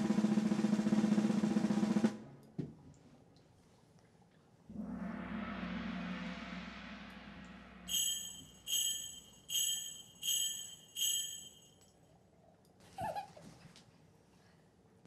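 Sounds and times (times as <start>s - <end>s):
shimmering whoosh: 4.7s - 11.7s
bright bell chimes: 7.9s - 11.8s.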